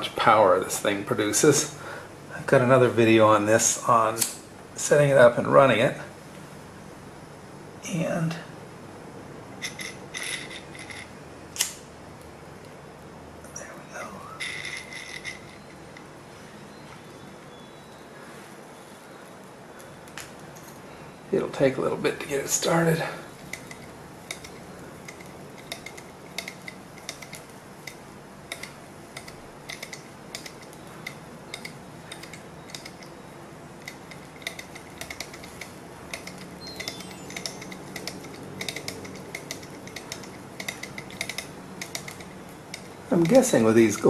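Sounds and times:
light metallic clicks and clatter: 23.0s - 33.2s, 33.8s - 44.0s.

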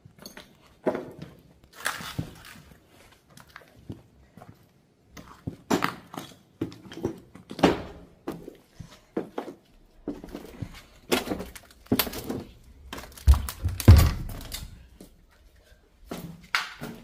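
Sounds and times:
footsteps and scuffs on floor: 0.0s - 17.0s
heavy thumps: 13.1s - 14.6s.

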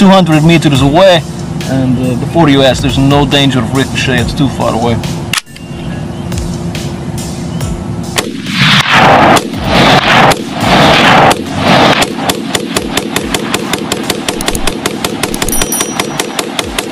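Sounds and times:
rifle firing rapid volleys: 8.2s - 16.9s.

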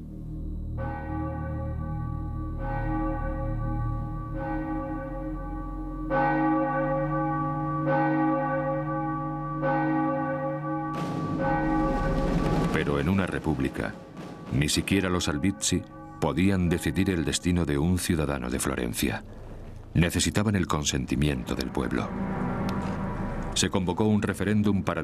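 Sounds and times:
church bell tolling: 0.8s - 19.5s, 21.1s - 25.0s.

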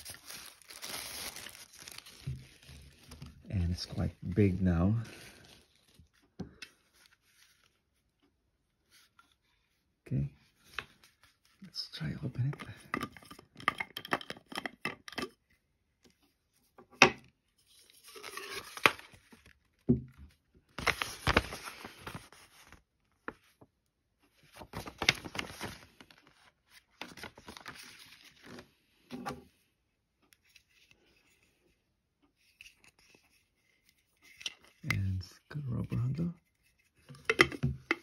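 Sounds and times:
packaging rustling and crinkling: 0.0s - 7.8s, 20.7s - 23.6s, 24.4s - 28.7s.

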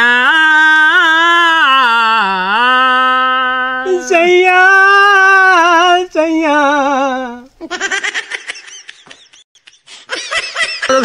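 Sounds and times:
man singing unaccompanied: 0.0s - 7.6s.

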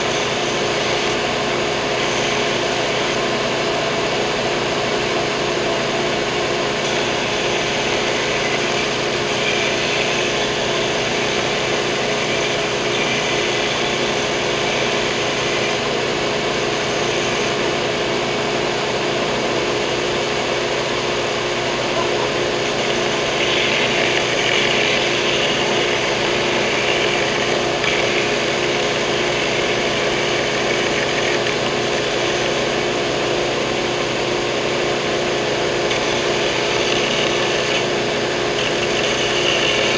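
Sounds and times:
belt sander rasping wood: 6.8s - 15.8s, 21.8s - 33.0s, 35.8s - 39.9s.

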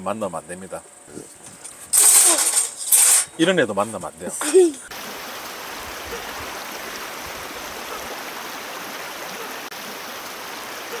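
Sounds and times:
stream flowing: 4.2s - 11.0s.

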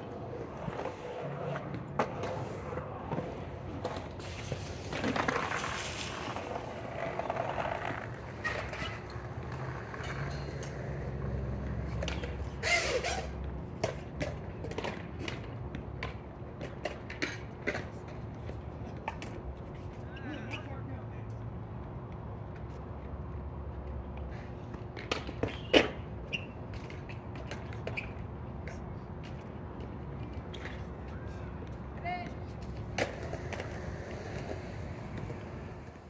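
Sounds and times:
skateboard scraping: 0.0s - 20.7s, 24.2s - 36.0s
skateboard wheels rolling on concrete: 0.0s - 36.0s
skateboard knocks and clicks: 0.3s - 18.4s, 24.9s - 28.2s.

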